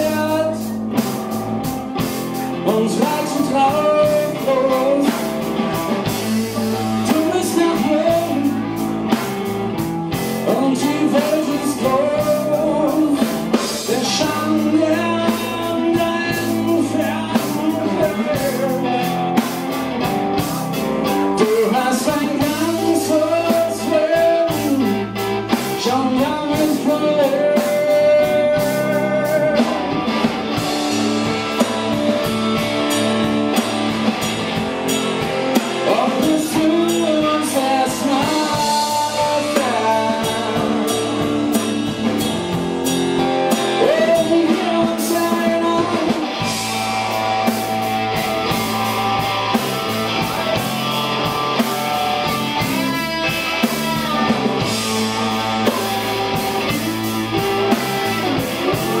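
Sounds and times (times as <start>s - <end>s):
man singing into microphone: 0.0s - 0.8s, 2.6s - 8.8s, 10.3s - 19.3s, 21.1s - 30.0s, 35.7s - 41.8s, 43.6s - 46.7s
drum kit steady beat: 0.0s - 59.0s
electric guitar: 0.0s - 59.0s.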